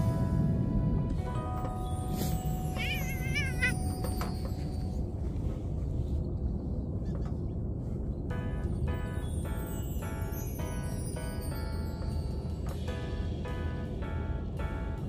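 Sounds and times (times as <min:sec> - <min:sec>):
background music: 0:00.0 - 0:05.1, 0:08.3 - 0:15.0
low rumble: 0:00.0 - 0:15.0
cat meowing: 0:02.7 - 0:03.8.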